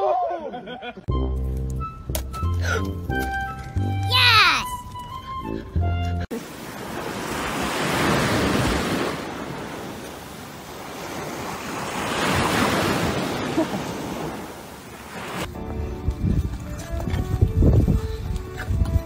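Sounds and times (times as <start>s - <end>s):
surf washing onto beach: 6.4s - 15.5s
wind rumble on microphone: 15.5s - 19.0s.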